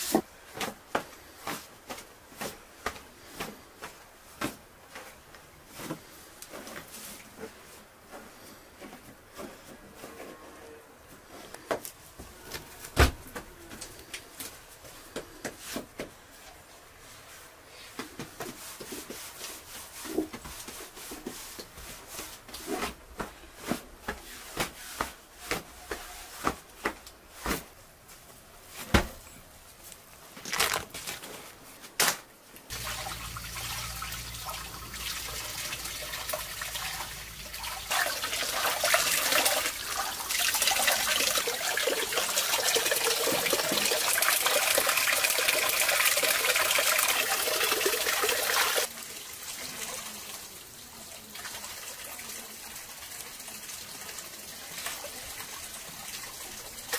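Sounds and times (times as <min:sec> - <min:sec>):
running water: 0:32.7 - 0:56.9.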